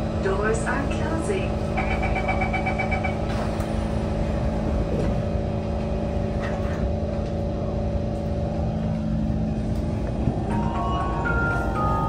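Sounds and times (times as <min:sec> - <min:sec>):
train car hum: 0:00.0 - 0:12.0
train doors sliding shut: 0:02.2 - 0:07.3.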